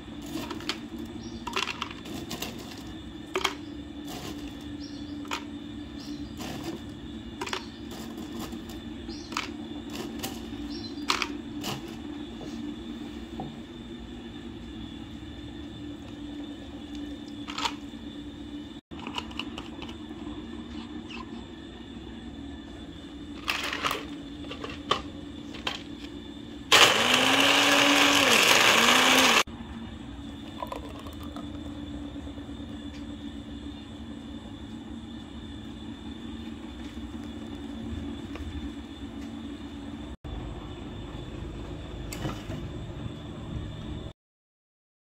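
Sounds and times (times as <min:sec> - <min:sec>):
electric blender running: 0:26.7 - 0:29.5.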